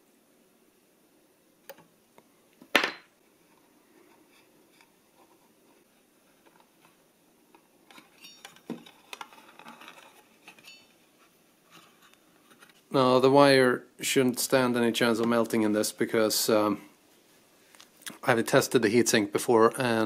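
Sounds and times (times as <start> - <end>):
small clicks and plastic rustling: 6.4 - 10.9.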